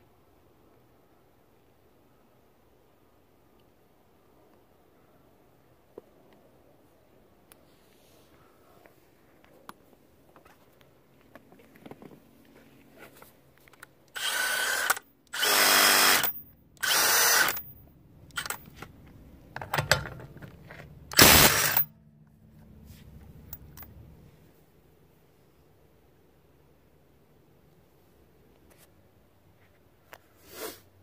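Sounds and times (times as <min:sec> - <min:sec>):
impact driver hammering lug nut: 0:21.1 - 0:21.8.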